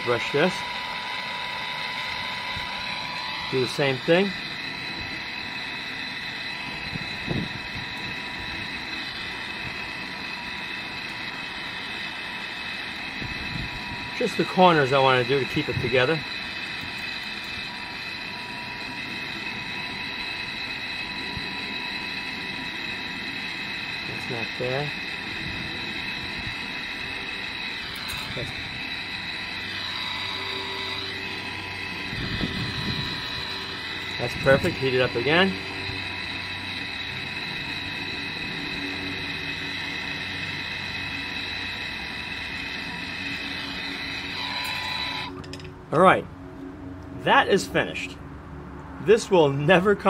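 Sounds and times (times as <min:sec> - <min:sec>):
gas torch flame burning: 0:00.0 - 0:45.7.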